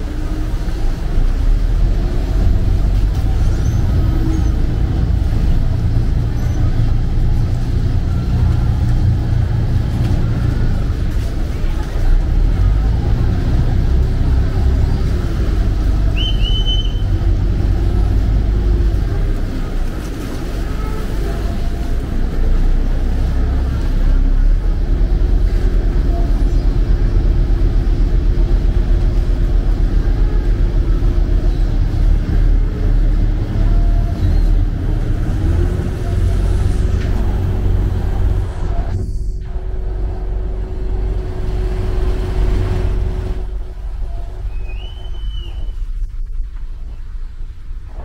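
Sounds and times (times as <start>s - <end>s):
boat diesel engine rumbling: 0.0s - 48.0s
high whistle: 16.2s - 17.1s, 44.5s - 45.9s.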